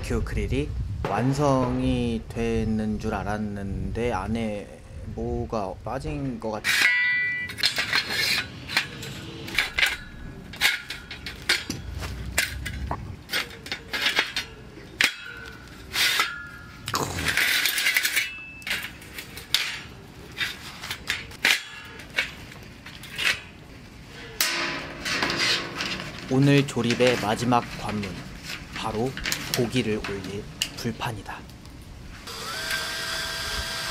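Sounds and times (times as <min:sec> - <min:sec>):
metal grill grate clinking: 0:06.6 - 0:23.6, 0:24.3 - 0:31.1.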